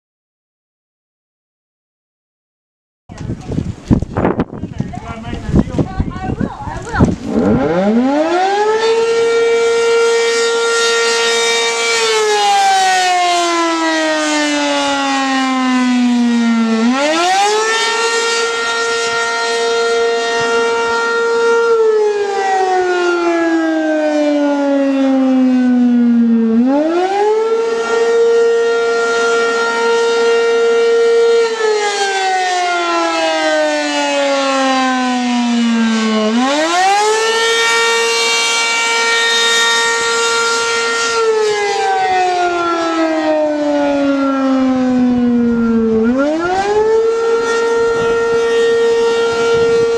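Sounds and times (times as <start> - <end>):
rotating warning siren: 4.2 - 49.9.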